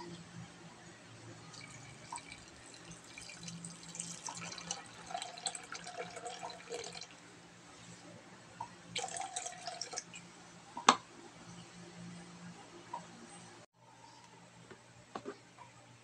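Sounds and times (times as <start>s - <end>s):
water pouring onto nuts in a pot: 1.5s - 7.1s.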